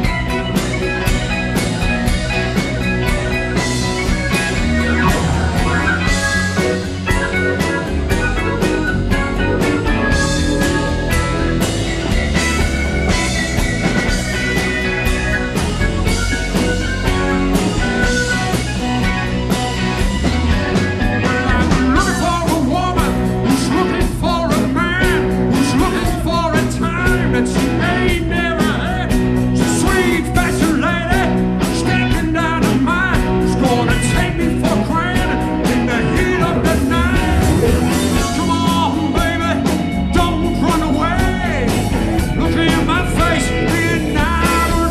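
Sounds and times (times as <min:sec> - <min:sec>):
live rock band playing: 0:00.0 - 0:44.9
man singing: 0:21.2 - 0:44.9.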